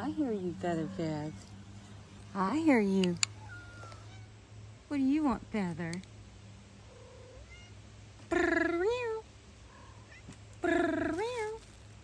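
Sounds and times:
cat meowing: 6.9 - 7.8.

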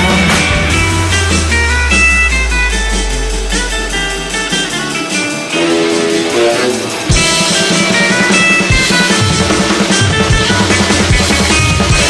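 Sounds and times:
held bass note: 0.0 - 7.4
picked guitar notes: 0.0 - 12.0
rock band playing: 0.0 - 12.0.

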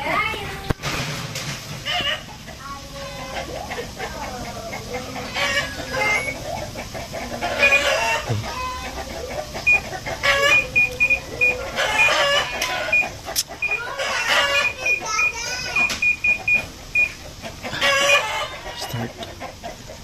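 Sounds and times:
chickens clucking: 0.0 - 20.0
washing machine button beeps: 5.8 - 6.4, 7.6 - 8.0, 9.6 - 12.2, 12.9 - 13.9, 14.6 - 17.2
rooster crowing: 7.3 - 9.0, 10.2 - 13.1, 17.7 - 19.0.

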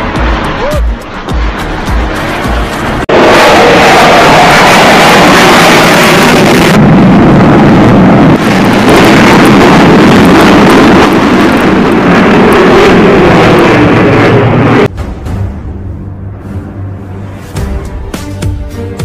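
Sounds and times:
fighter jet flying past: 0.0 - 14.9.

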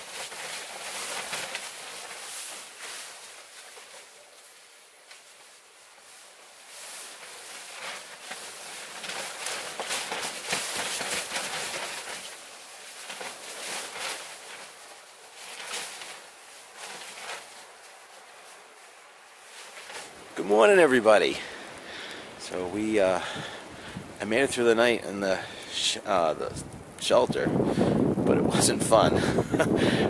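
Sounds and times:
short rustles and knocks: 0.0 - 24.5
wind gusting: 20.1 - 30.0.

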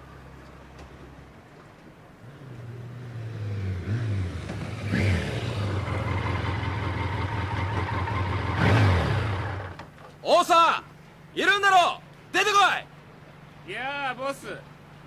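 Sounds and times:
motorcycle engine revving: 2.4 - 9.9.

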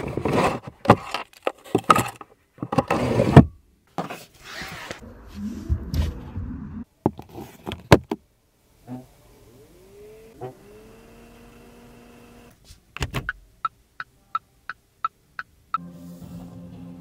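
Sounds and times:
small electric motor whining: 9.4 - 12.6.

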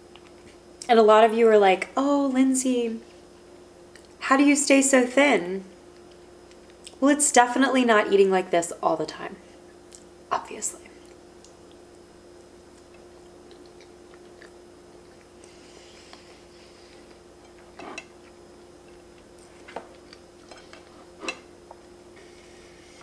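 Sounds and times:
faint steady hum: 0.0 - 23.0
soft chewing: 3.9 - 4.2, 5.9 - 7.0, 9.6 - 10.1, 10.8 - 22.7.

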